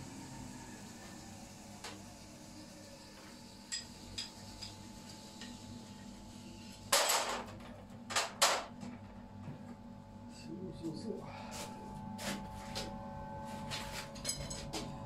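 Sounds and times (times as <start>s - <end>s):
metal tools clinking and clattering: 14.2s - 14.7s.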